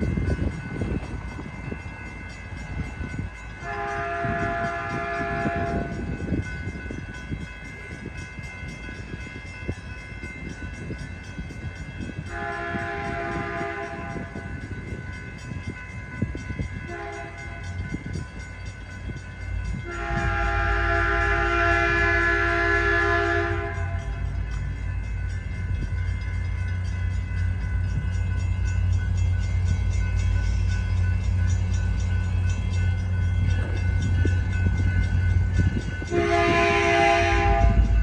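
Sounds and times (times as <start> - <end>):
electronic crossing bell ringing: 0.0 - 38.0
low train rumble: 0.0 - 38.0
locomotive horn blasts: 3.6 - 6.1, 12.2 - 14.6, 16.9 - 17.6, 19.8 - 24.2, 36.0 - 38.0.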